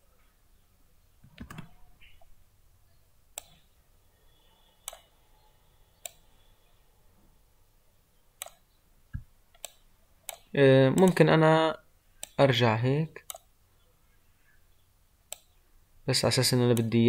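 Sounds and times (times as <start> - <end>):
computer mouse clicking: 1.2 - 2.3, 3.4 - 3.7, 4.8 - 5.1, 6.0 - 6.3, 8.4 - 8.6, 9.2 - 11.2, 12.2 - 12.4, 13.2 - 13.5, 15.3 - 15.6, 16.7 - 16.9.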